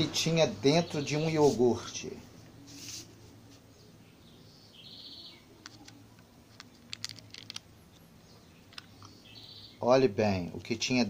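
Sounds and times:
bird chirping: 0.4 - 1.4, 3.6 - 10.0
plastic cup clicking and crinkling: 5.6 - 8.1, 8.7 - 9.2.

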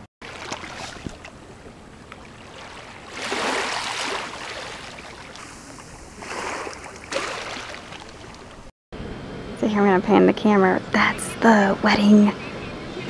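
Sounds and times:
waves lapping on sandy shore: 0.2 - 8.5.

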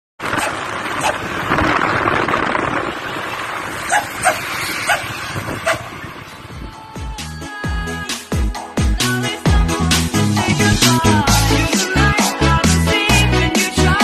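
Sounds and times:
road traffic noise: 0.2 - 8.7
dog barking: 3.9 - 5.8.

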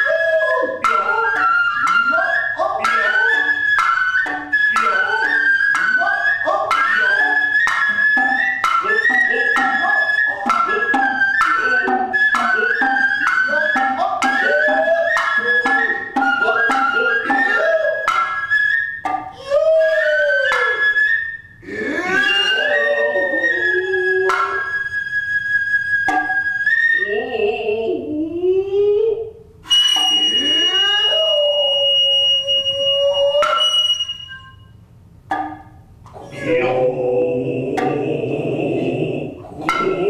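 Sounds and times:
bamboo flute wavering line: 0.0 - 40.0
drummers' drawn-out sliding calls: 0.8 - 19.2.

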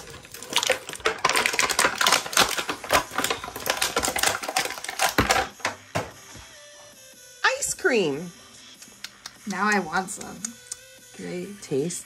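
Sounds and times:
plastic and cardboard packaging crackling: 0.0 - 6.2.

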